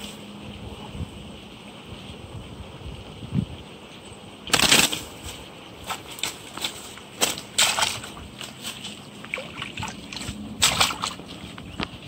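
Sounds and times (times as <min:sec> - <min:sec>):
water splashing: 0:05.9 - 0:11.6.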